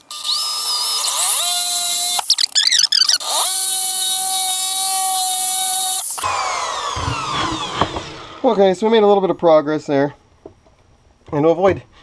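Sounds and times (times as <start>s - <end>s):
power drill whining: 0.0s - 8.6s.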